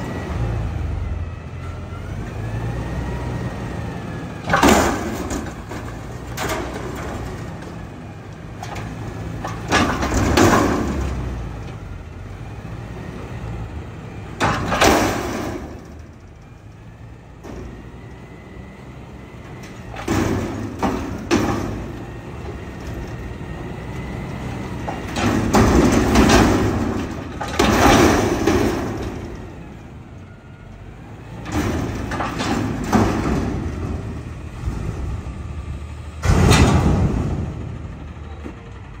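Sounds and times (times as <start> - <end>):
garbage truck engine running: 0.0 - 39.0
dumpster banging and clanking: 3.2 - 39.0
heavy clunk: 4.4 - 7.8, 8.6 - 11.9, 14.3 - 16.4, 19.4 - 29.8, 31.3 - 35.1, 36.2 - 38.9.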